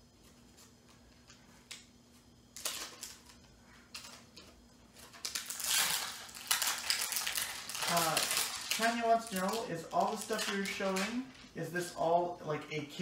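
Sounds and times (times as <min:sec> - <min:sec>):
packaging rustle: 0:02.6 - 0:11.6.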